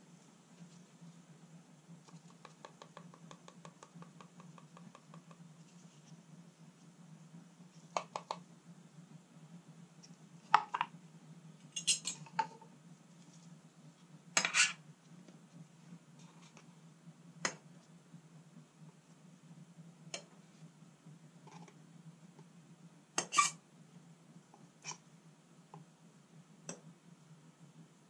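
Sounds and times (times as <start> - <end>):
steady low hum: 0.0 - 28.0
tongs knocking and clinking: 11.8 - 12.4.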